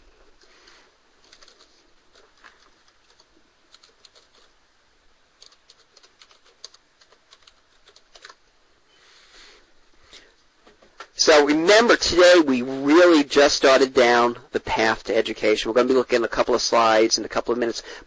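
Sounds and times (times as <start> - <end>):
computer keys clicking: 1.2 - 4.6, 5.4 - 8.4.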